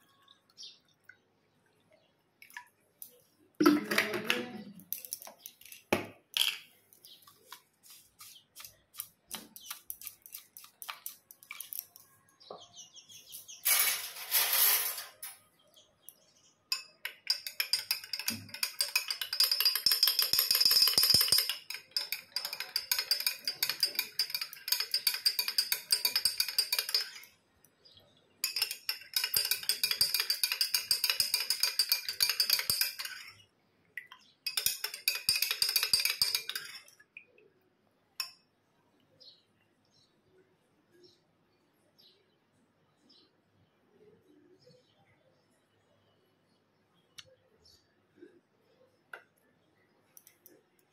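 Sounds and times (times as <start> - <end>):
spoon clinking in a glass: 16.7 - 27.4, 28.4 - 33.4, 34.4 - 37.0.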